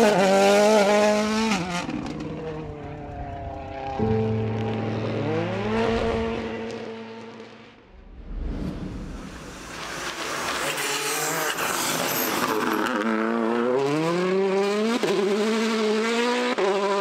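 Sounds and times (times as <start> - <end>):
rally car engine accelerating: 0.0 - 7.9, 9.6 - 17.0.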